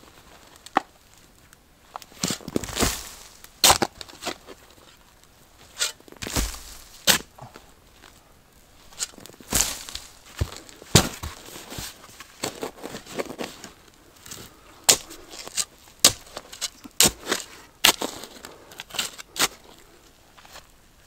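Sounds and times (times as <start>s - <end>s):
spade digging in stony soil: 2.1s - 5.0s, 5.6s - 7.4s, 8.8s - 13.6s, 14.9s - 19.7s.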